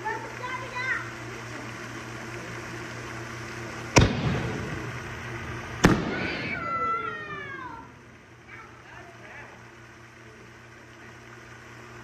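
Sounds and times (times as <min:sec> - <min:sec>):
firework bangs with echo: 0:03.9 - 0:07.4.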